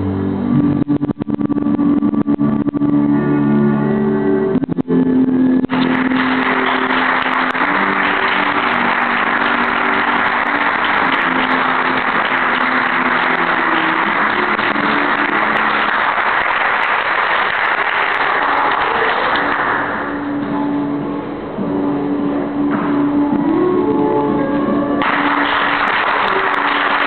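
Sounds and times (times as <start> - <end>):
background music: 0.0 - 27.0
audience clapping and cheering: 5.6 - 20.4, 25.0 - 27.0.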